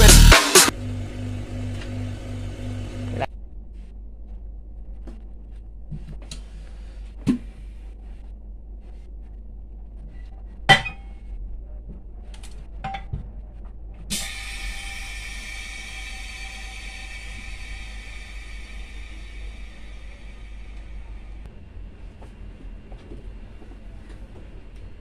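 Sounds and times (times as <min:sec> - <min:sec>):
steady hiss: 0:14.1 - 0:21.5.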